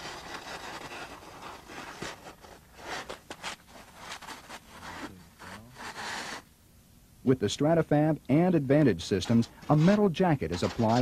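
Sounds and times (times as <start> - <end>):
insulation scraping against pipe: 0.0 - 6.5, 9.2 - 11.0.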